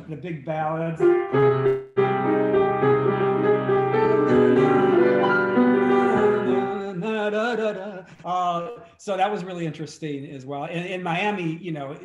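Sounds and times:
grand piano playing: 0.9s - 7.5s.

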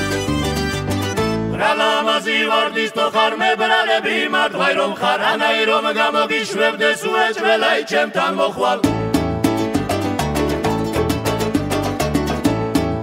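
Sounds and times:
voices singing folk song: 1.4s - 9.2s.

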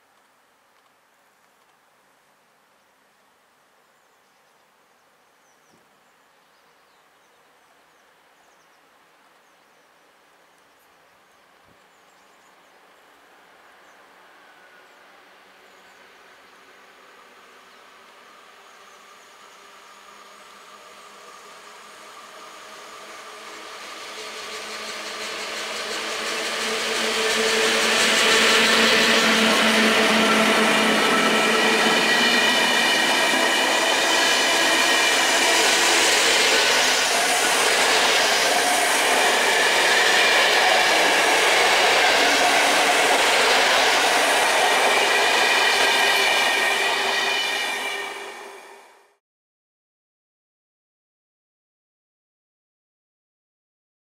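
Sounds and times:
train rumble: 14.2s - 49.1s
train wheels rushing on rails: 16.2s - 49.1s.

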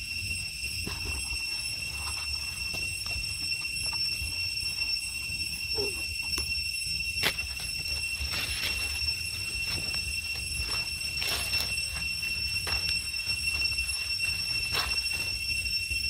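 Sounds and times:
high-pitched insect drone: 0.0s - 16.0s
dry leaves rustling: 7.2s - 15.6s.

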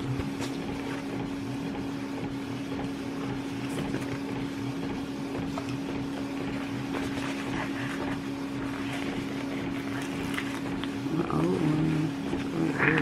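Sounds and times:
low machine hum: 0.0s - 13.0s
paper rustling: 6.4s - 11.0s.

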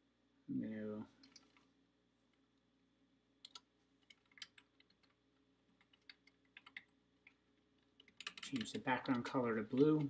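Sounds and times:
keyboard typing: 3.4s - 5.2s, 5.8s - 10.0s.

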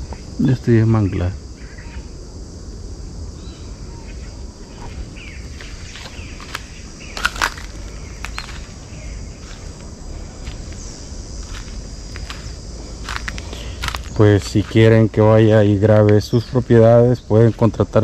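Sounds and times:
high-pitched insect chorus: 0.0s - 18.0s
bird chirps: 3.4s - 9.5s
sharp snaps: 6.0s - 8.6s.

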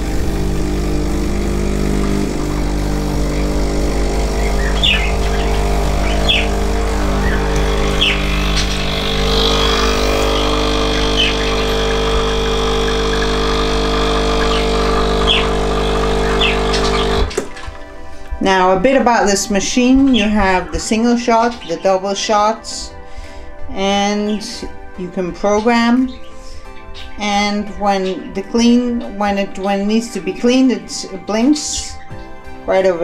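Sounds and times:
espresso machine pump humming: 0.0s - 17.6s.

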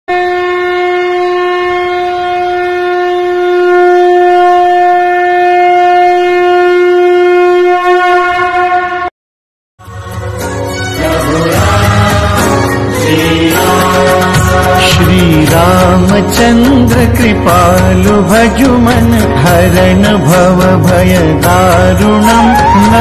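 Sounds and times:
conch shell blown: 0.1s - 9.1s
music: 9.8s - 23.0s.

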